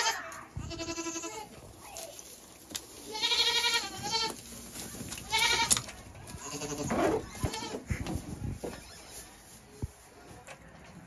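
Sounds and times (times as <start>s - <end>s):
goats bleating: 0.0s - 1.6s, 3.1s - 4.4s, 5.2s - 7.9s.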